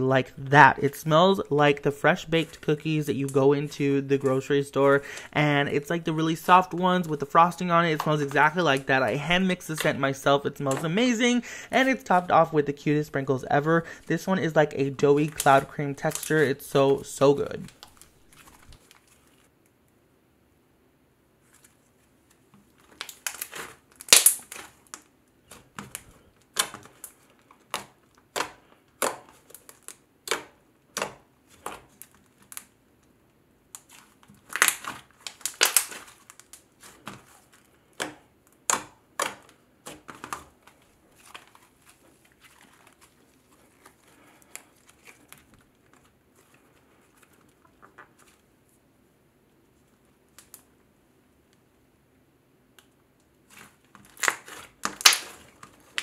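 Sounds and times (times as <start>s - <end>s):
slime popping and clicking: 23.0s - 25.0s, 34.4s - 36.5s.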